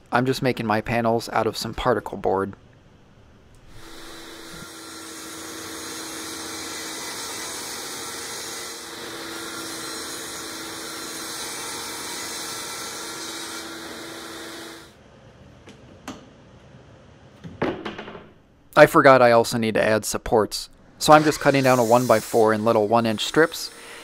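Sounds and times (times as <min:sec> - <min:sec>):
table saw cutting panel: 0:03.7 - 0:14.9, 0:21.0 - 0:24.0.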